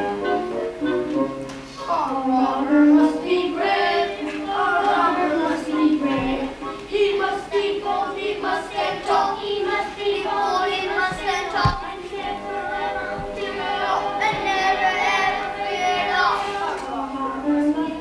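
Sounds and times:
children singing: 1.8s - 18.0s
low thump: 11.1s - 11.9s.

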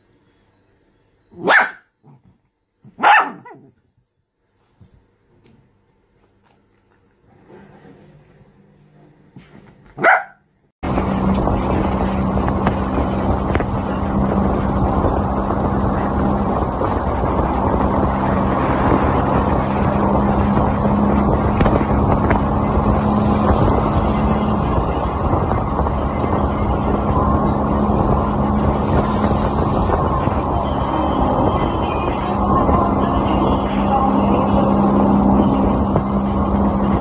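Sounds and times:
dog yelping: 1.4s - 2.2s, 3.0s - 3.7s, 10.0s - 10.4s
motorbike engine hum: 7.3s - 37.0s
wind rush on microphone: 10.8s - 37.0s.

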